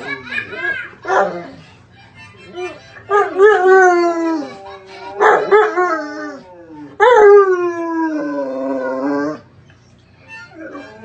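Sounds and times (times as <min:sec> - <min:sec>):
dog howling: 0:03.1 - 0:09.5.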